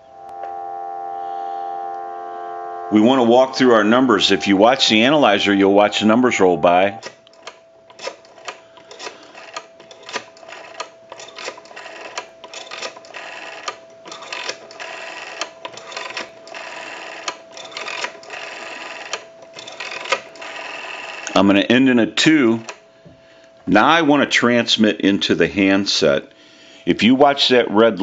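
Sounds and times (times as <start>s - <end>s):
steady tone: 0.0s - 7.0s
rotary dial clicking: 22.6s - 22.8s.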